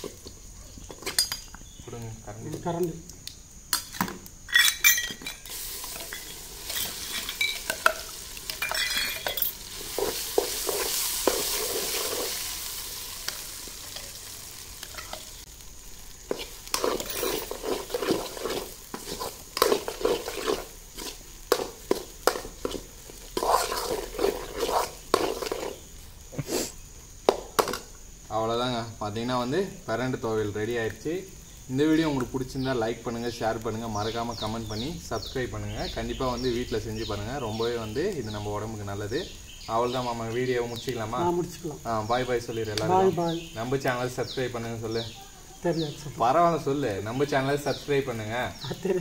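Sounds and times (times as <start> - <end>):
paste sizzling in hot oil: 0.0 - 49.0
metal clinks: 4.5 - 9.7
ladle scraping a metal pan: 4.5 - 12.5, 16.3 - 25.8.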